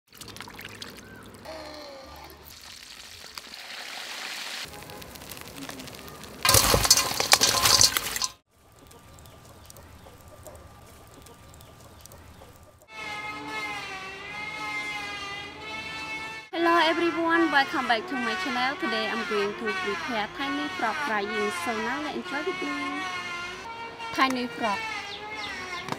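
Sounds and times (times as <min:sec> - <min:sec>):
charcoal fire crackling: 0:02.2 - 0:12.9
fried food rustling in metal bowl: 0:02.5 - 0:12.6.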